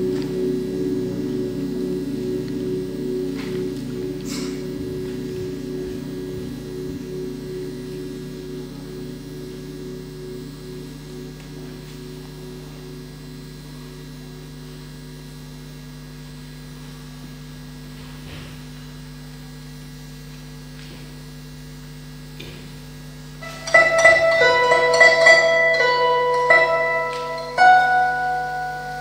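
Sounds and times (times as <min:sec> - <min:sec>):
plucked-string music: 0:00.0 - 0:14.3, 0:23.4 - 0:29.0
high musical tone: 0:00.0 - 0:14.6, 0:23.4 - 0:29.0
low hum: 0:00.0 - 0:16.0.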